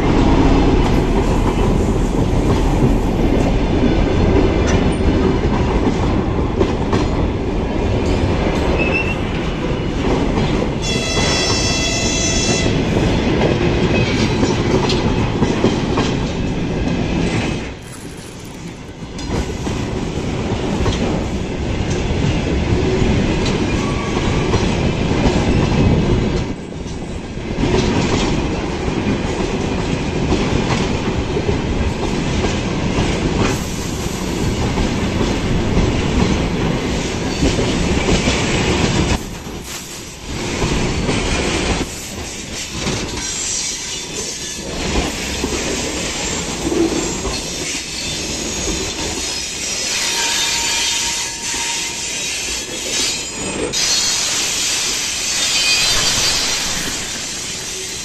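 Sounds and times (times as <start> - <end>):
high squeal: 53.0 - 58.0.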